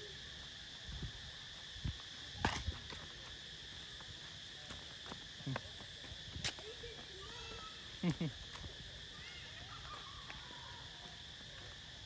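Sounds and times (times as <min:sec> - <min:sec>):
insect chorus drone: 0:00.0 - 0:12.0
footsteps on stone paving: 0:01.5 - 0:07.7.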